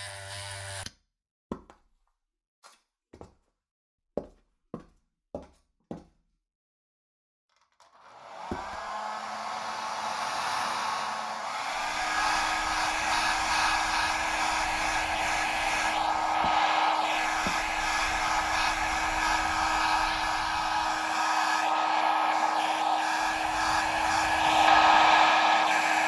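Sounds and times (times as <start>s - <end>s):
hair dryer blowing: 8.0s - 26.0s.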